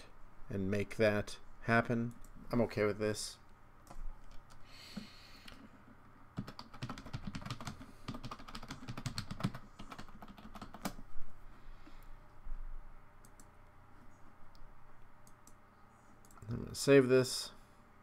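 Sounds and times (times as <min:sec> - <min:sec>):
typing on computer keyboard: 0:06.4 - 0:11.0.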